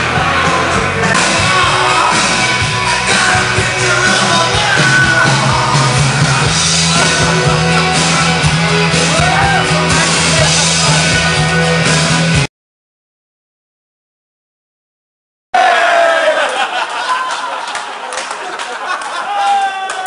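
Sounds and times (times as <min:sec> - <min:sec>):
loud music with singing: 0:00.0 - 0:12.5.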